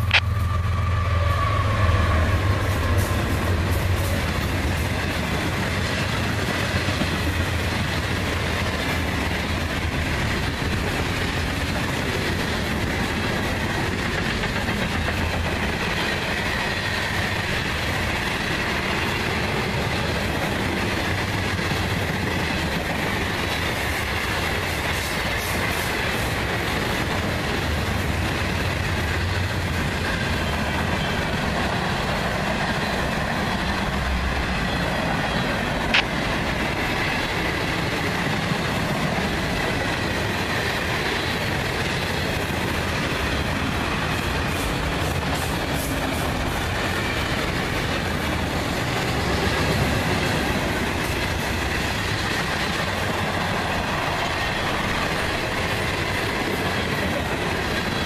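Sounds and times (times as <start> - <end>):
wavering high whine: 0.0 - 2.8
freight train wheels on rails: 0.0 - 58.0.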